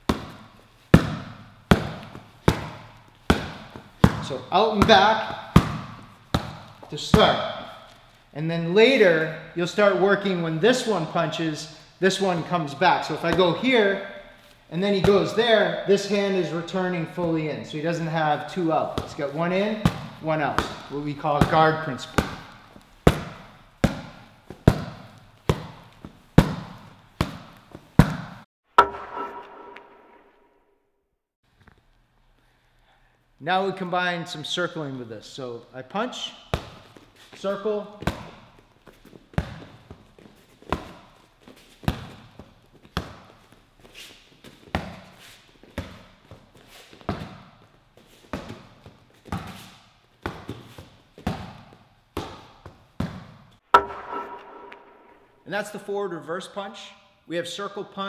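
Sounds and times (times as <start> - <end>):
punches hitting focus mitt: 0.1 - 7.7, 18.7 - 29.9, 50.2 - 55.2.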